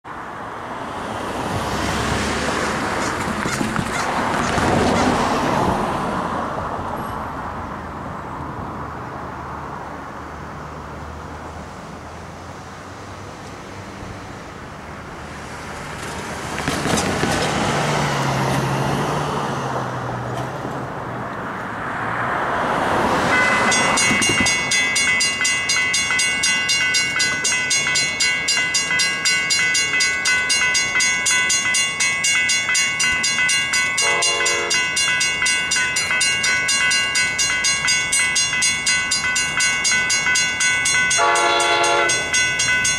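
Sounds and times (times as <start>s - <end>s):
cars driving past: 0.1s - 42.9s
crossing bell ringing: 23.0s - 42.9s.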